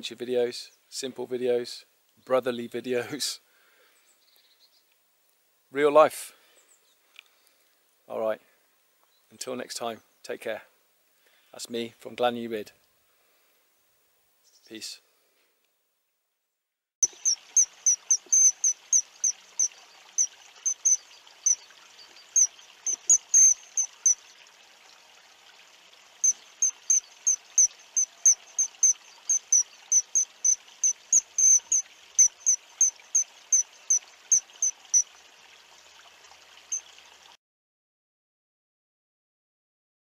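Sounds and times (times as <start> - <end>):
high-pitched chirping calls: 17.0 - 24.3, 26.2 - 35.1
steady rushing hiss: 17.0 - 35.3.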